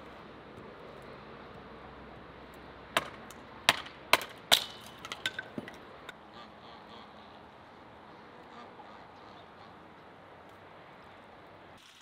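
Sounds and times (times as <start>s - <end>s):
hatchet chopping wood: 2.9s - 5.8s.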